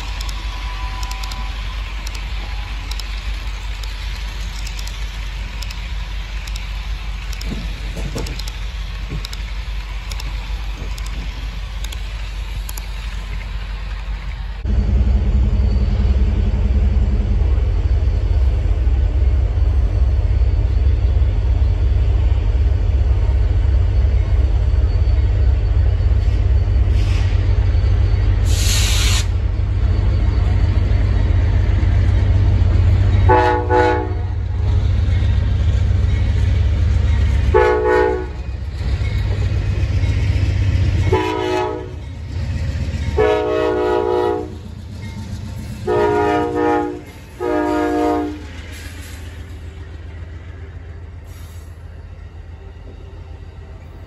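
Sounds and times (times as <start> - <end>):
low rumble of passing train: 0.0 - 54.0
train air horn blasts: 33.3 - 34.4, 37.5 - 38.4, 41.1 - 42.0, 43.2 - 44.6, 45.8 - 48.5.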